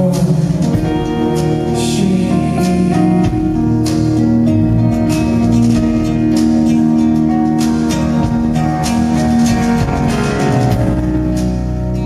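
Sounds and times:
acoustic guitar: 0.0 - 12.0
live band music: 0.0 - 12.0.

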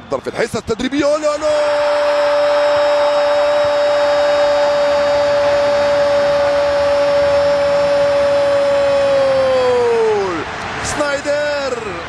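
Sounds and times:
stadium crowd roaring: 0.2 - 12.0
commentator's long goal cry: 1.2 - 10.4.

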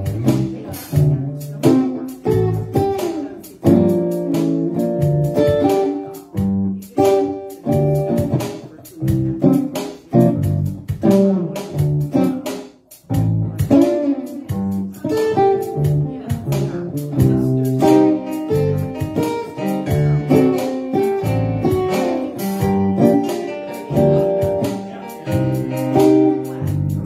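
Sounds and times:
low bass notes: 0.0 - 12.4, 13.0 - 27.0
amplified acoustic guitar playing: 0.0 - 27.0.

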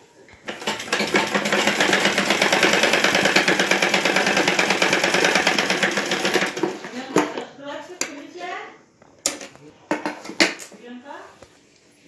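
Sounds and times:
sewing machine stitching: 0.4 - 6.9.

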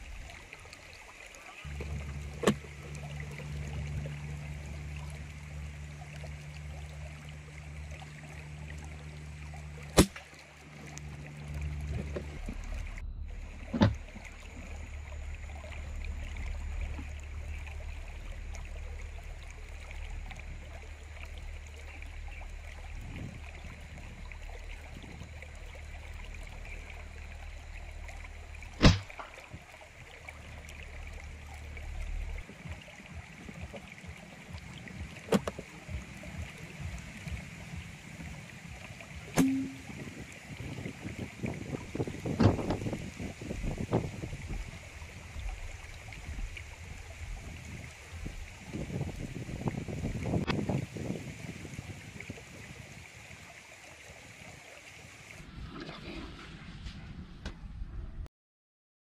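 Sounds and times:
low hum: 0.0 - 50.5, 55.3 - 58.3
airgun firing cracks: 10.0 - 10.2, 28.8 - 29.2.

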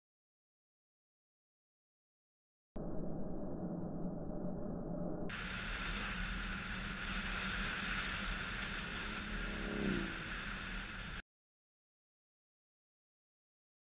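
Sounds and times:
strong wind rush: 4.3 - 11.2.

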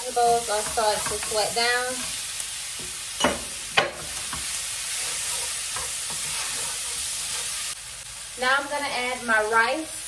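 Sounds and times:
frying pan sizzling: 0.0 - 10.0
wooden spoon stirring and tapping: 0.5 - 2.1, 3.8 - 7.6
wooden spoon knocking on pan: 2.8 - 4.5.

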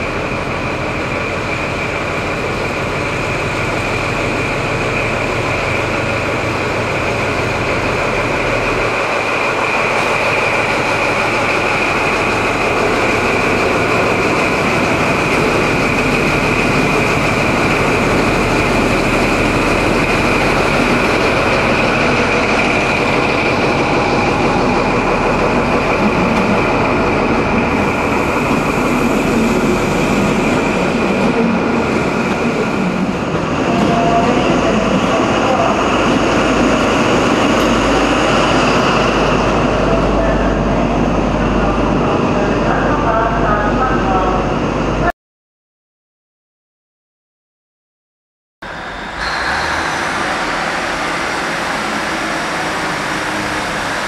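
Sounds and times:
diesel locomotive engine passing: 0.0 - 45.1, 48.6 - 54.0
high engine whine: 0.0 - 45.1, 48.6 - 54.0
train coaches rolling past: 0.0 - 45.1, 48.6 - 54.0.

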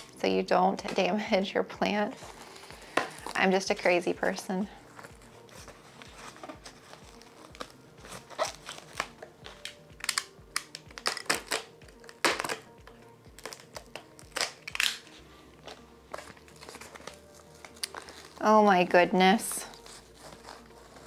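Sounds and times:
faint background music with beat: 0.0 - 21.0
cardboard tearing and crinkling: 5.6 - 10.3, 16.1 - 18.4.

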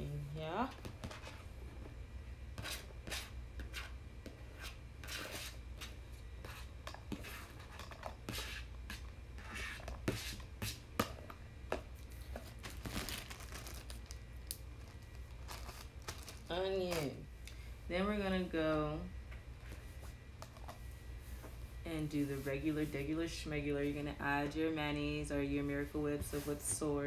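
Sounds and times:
plastic bag crinkling: 12.5 - 17.2.

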